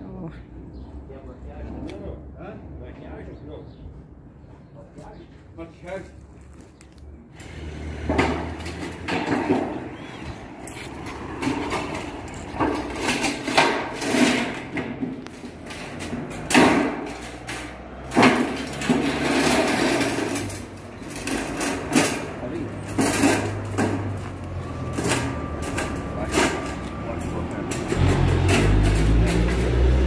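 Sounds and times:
sheet metal knocks and rattles: 8.1s - 9.8s, 11.4s - 24.2s.

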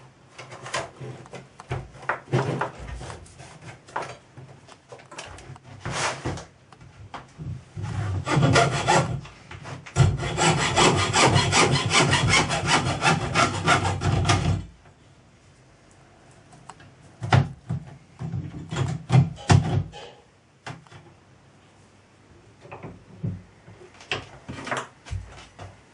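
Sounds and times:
hacksaw cutting brass: 8.2s - 9.1s, 10.0s - 14.5s.

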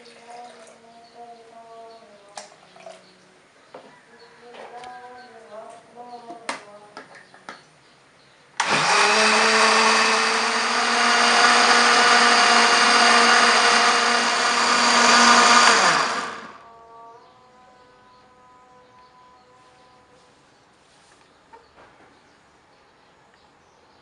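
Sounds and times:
electric blender running: 8.6s - 16.6s.

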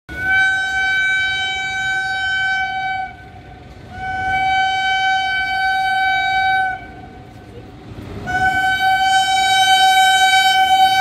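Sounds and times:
locomotive horn blasts: 0.1s - 7.4s, 8.2s - 11.0s.

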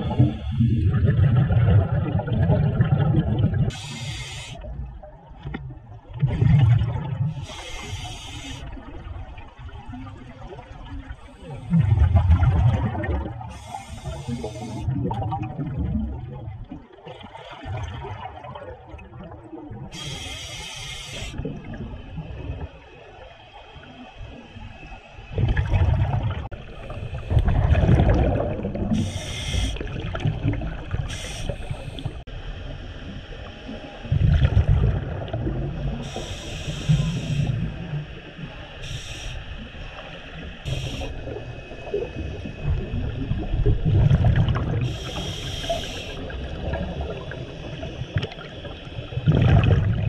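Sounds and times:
gurgling exhaled bubbles: 0.0s - 4.0s, 4.6s - 7.6s, 8.8s - 20.0s, 21.3s - 22.9s, 25.3s - 32.2s, 34.0s - 38.0s, 40.7s - 50.0s
hissing regulator inhalations: 3.7s - 4.7s, 7.4s - 8.8s, 13.5s - 14.9s, 19.9s - 21.4s, 28.9s - 30.1s, 31.0s - 32.3s, 36.0s - 37.7s, 38.8s - 39.6s, 40.6s - 41.4s, 44.8s - 46.5s.

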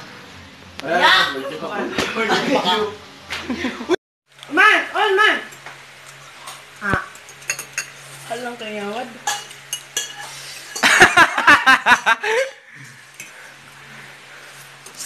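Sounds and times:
fork clinking in metal pot: 7.2s - 8.0s, 9.2s - 11.0s.

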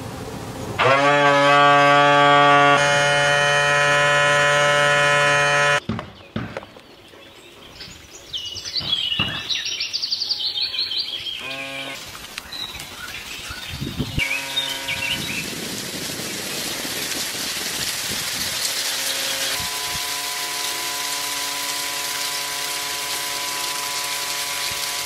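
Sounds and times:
compressor whine and hum: 0.0s - 5.8s, 11.4s - 12.0s, 14.1s - 25.0s.

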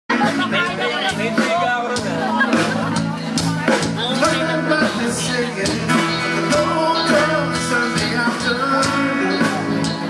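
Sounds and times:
live band guitars and drums: 0.1s - 10.0s
man singing into a microphone: 0.1s - 10.0s.

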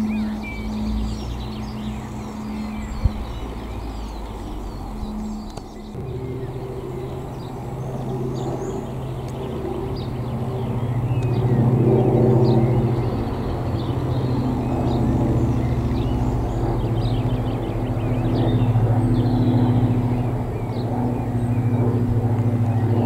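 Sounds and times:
birds chirping faintly: 0.0s - 23.0s
distant propeller aircraft hum: 0.0s - 23.0s
propeller plane droning past: 0.0s - 23.0s.

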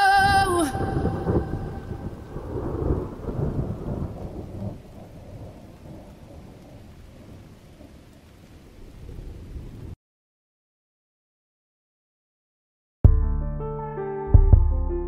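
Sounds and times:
thunder rumbling: 0.0s - 10.0s
rain hiss: 0.5s - 10.0s.

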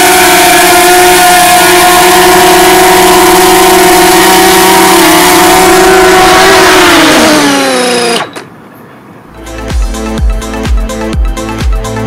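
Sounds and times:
drone propellers whining: 0.0s - 8.6s.

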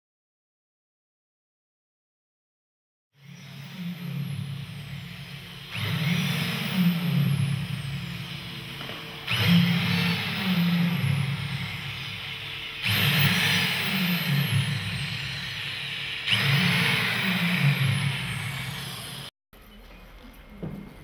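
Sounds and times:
electric drill motor whirring: 3.2s - 19.3s.

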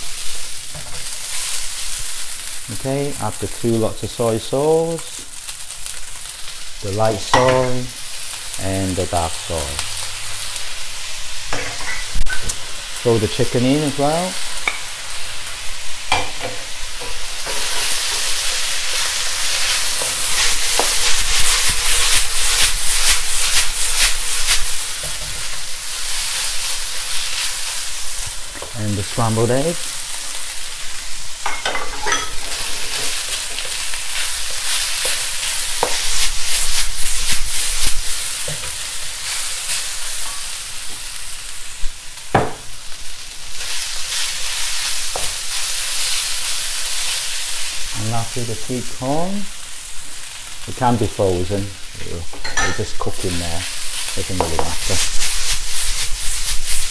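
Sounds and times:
food sizzling in a wok: 0.0s - 56.9s
spatula scraping a pan: 16.1s - 25.6s.

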